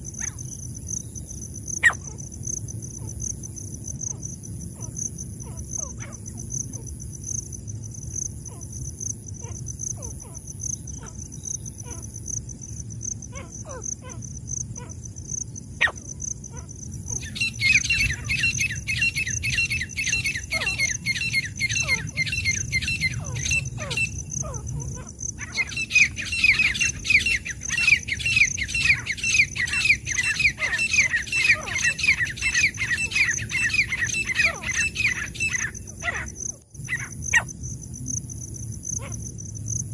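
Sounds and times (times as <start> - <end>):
high insect drone: 0.0 - 39.9
francolin calling: 1.8 - 2.3, 15.7 - 37.5.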